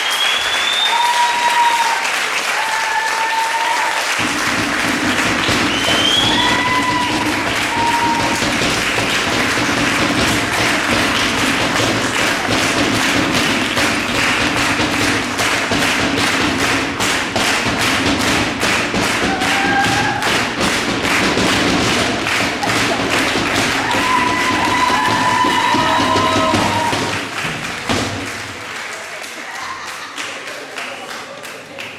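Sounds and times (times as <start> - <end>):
frame drum beaten with stick: 4.2 - 28.3.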